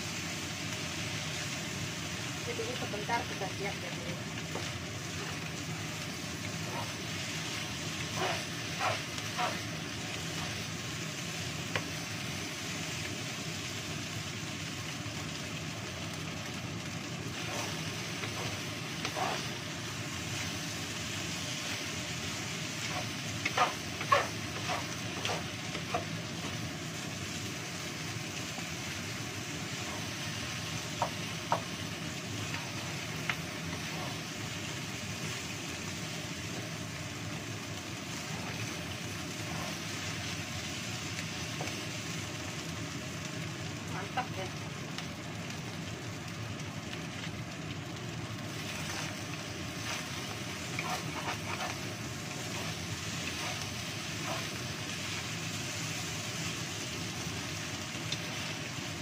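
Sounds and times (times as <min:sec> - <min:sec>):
rice sizzling in a frying pan: 0:00.0 - 0:59.0
spatula knocking and scraping pan: 0:17.4 - 0:19.6, 0:22.8 - 0:26.6, 0:30.8 - 0:31.8, 0:49.8 - 0:54.6.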